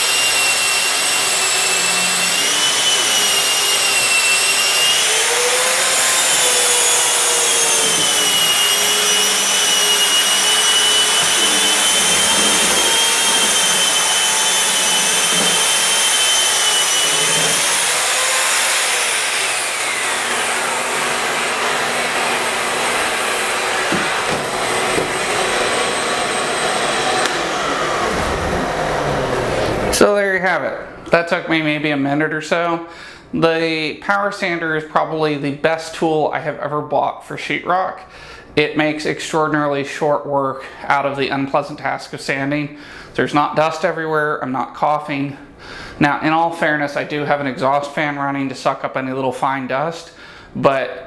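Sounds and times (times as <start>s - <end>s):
drywall sander motor whine: 0.0s - 30.0s
vacuum rushing: 21.9s - 30.0s.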